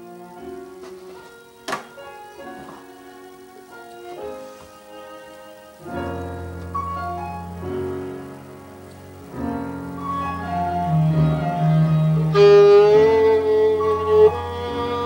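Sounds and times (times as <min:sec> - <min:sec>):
backing track of sustained chords: 0:00.0 - 0:15.0
violin long held note: 0:10.3 - 0:15.0.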